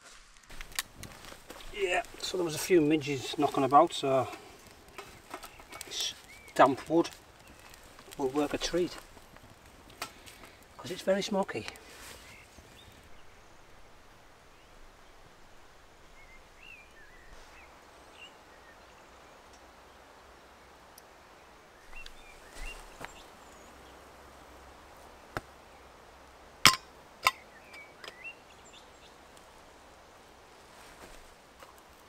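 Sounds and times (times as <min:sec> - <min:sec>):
bird chirping: 0:21.8 - 0:24.0, 0:27.3 - 0:29.2
metal pot and lid clinking: 0:26.7 - 0:27.4.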